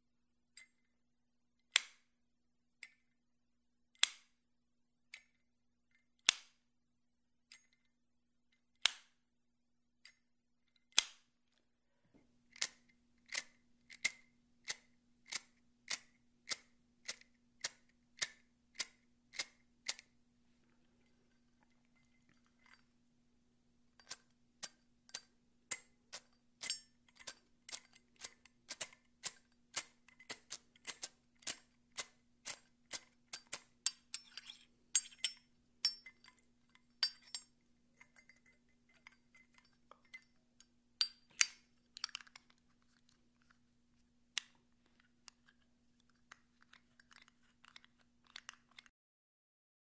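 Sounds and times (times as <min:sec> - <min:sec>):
lighter lid clicking open and shut: 0:10.9 - 0:11.2, 0:12.5 - 0:20.1, 0:24.0 - 0:36.1, 0:41.0 - 0:42.4, 0:45.4 - 0:48.9
bright metallic clinks: 0:26.6 - 0:27.4, 0:33.9 - 0:42.3.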